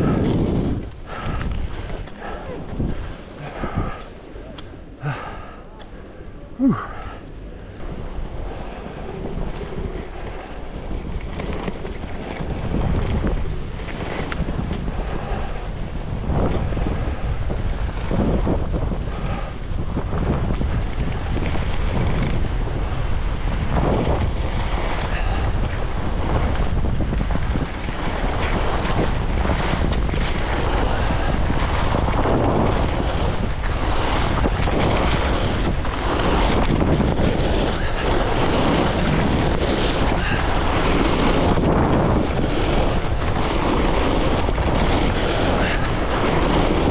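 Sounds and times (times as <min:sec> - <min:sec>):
wind buffeting microphone: 0:00.0 - 0:46.9
ski edges scraping snow: 0:20.1 - 0:46.9.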